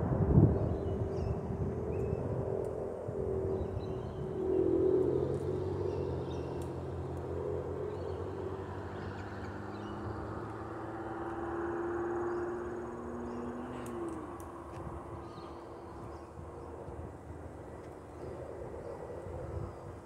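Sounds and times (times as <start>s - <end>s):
distant traffic engine drone: 0.0s - 20.0s.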